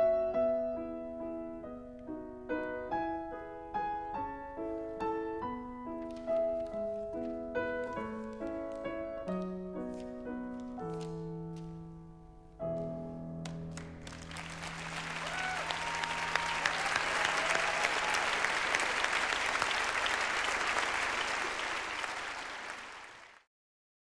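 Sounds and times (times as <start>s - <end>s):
audience applause: 13.8s - 23.5s.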